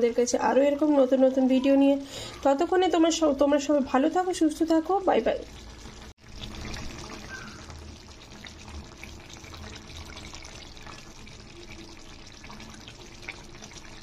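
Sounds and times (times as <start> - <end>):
curry bubbling in a pan: 2.6 - 14.0.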